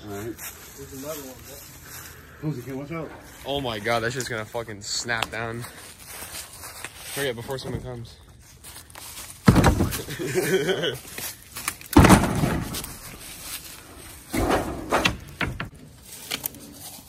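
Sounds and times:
heavy thuds and bangs: 9.4 - 10.1, 11.9 - 13.2, 14.3 - 15.7.

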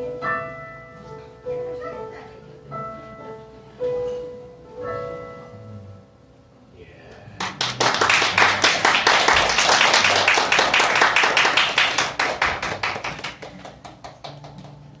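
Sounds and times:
audience applause: 7.4 - 14.8.

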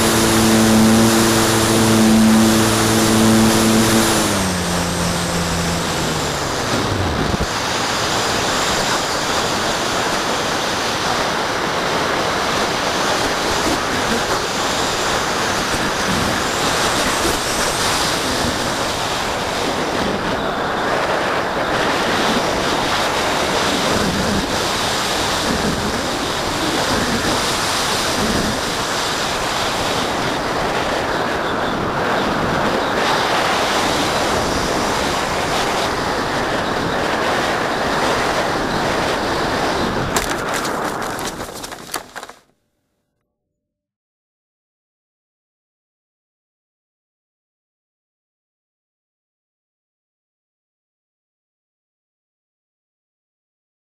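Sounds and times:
electric motor whine: 0.0 - 11.6
wind rushing over microphone: 0.0 - 41.6.

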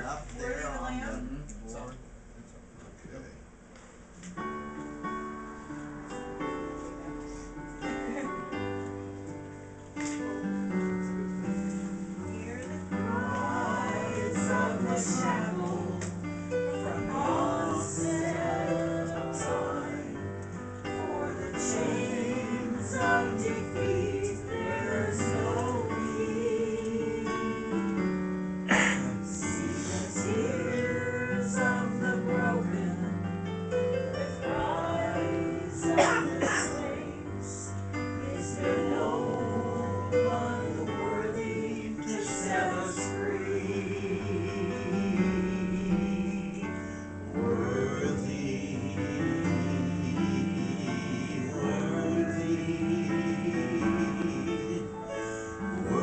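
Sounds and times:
hymn on digital piano: 0.0 - 56.0
voices singing: 10.8 - 56.0.

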